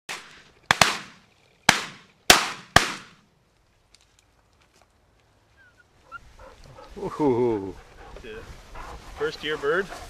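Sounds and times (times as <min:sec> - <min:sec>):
shotgun shots: 0:00.1 - 0:03.2.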